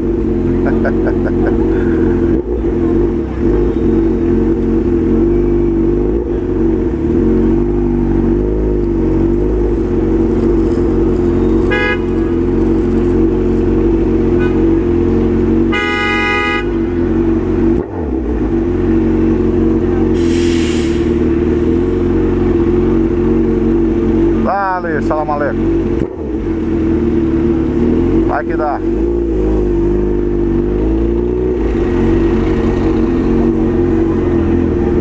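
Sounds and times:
motorcycle engine running: 0:00.0 - 0:20.2, 0:21.1 - 0:35.0
car horn tooting: 0:11.6 - 0:12.5, 0:14.3 - 0:14.8, 0:15.7 - 0:17.2.

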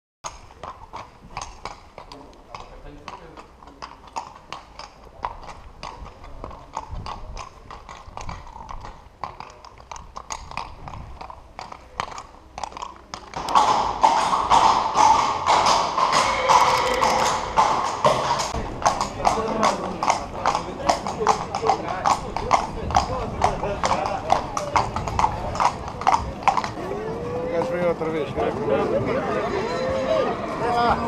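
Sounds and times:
hooves clip-clopping on cobblestones: 0:00.2 - 0:31.0
steady din: 0:13.6 - 0:19.0.

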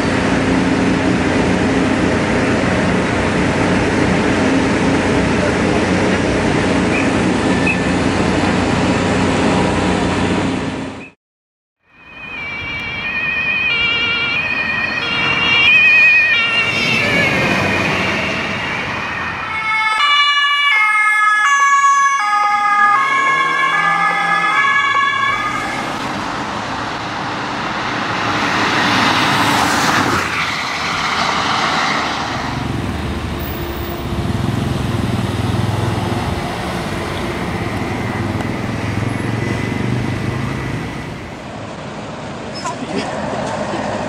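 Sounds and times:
two-tone siren: 0:11.8 - 0:26.1
car passing on wet road: 0:13.7 - 0:20.7, 0:22.9 - 0:42.4
low engine hum: 0:30.9 - 0:44.0.

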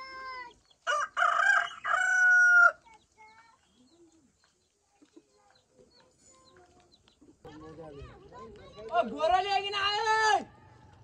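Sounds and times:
rooster crowing: 0:00.9 - 0:02.8.

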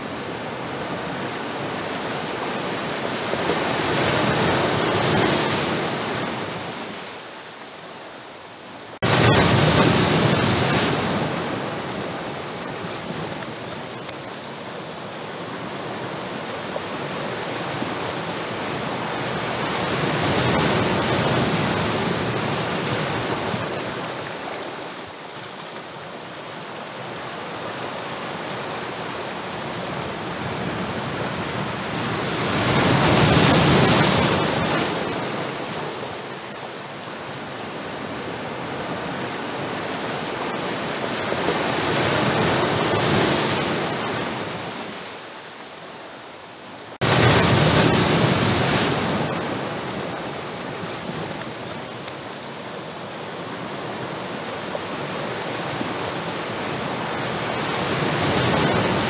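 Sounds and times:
sea waves breaking on rocky shore: 0:00.0 - 0:07.5, 0:08.8 - 0:45.6, 0:46.9 - 0:59.0.

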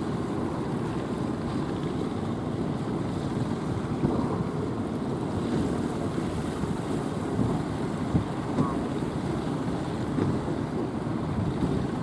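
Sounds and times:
rough surf churning: 0:00.0 - 0:12.0
wind buffeting microphone: 0:00.0 - 0:12.0.

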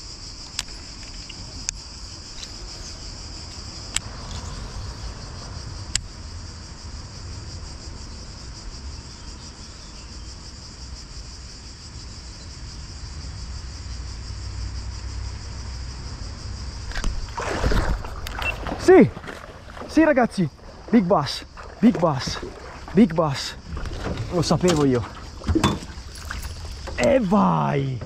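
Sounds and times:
insect chorus: 0:00.0 - 0:28.0.

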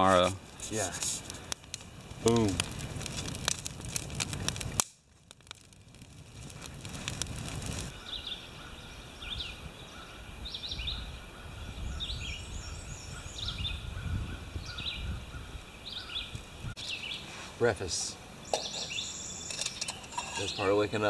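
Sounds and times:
campfire crackling: 0:00.0 - 0:21.0
birds chirping: 0:07.9 - 0:21.0.

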